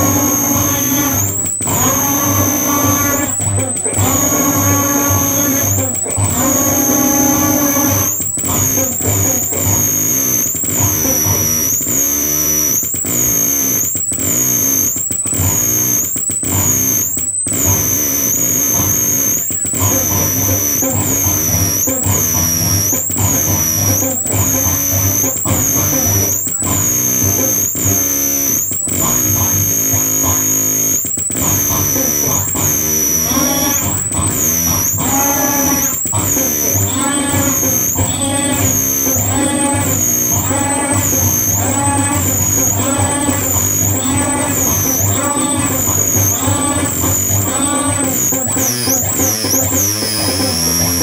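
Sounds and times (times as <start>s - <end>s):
distorted droning tones: 0.0s - 51.0s
piercing high swooping whistle: 0.0s - 51.0s.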